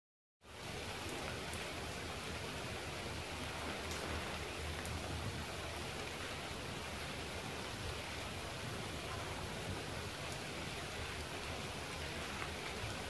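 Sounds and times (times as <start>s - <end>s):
steady rain falling: 0.4s - 13.0s.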